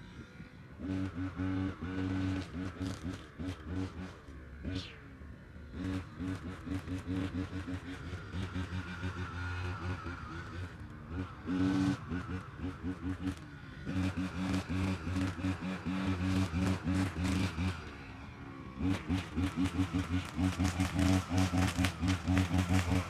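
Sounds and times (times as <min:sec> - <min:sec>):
brush cutter engine running: 0:18.8 - 0:23.0.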